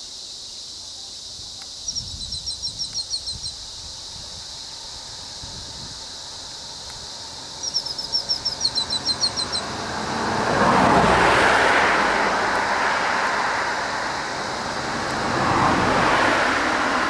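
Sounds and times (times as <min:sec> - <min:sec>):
steady high hiss: 0:00.0 - 0:10.2, 0:11.7 - 0:17.0
motor vehicle: 0:00.0 - 0:17.0
bird chirping: 0:01.8 - 0:03.7, 0:07.5 - 0:09.8.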